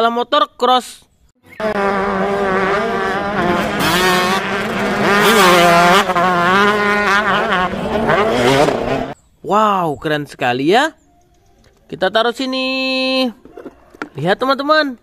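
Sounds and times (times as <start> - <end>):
dirt bike engine revving: 1.4 - 9.2.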